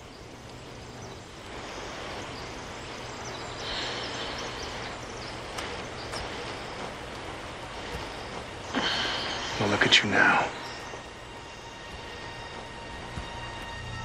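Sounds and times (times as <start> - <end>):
faint ticks: 0.0 - 9.7
higher hiss: 0.0 - 14.0
soft outdoor hiss: 0.0 - 14.0.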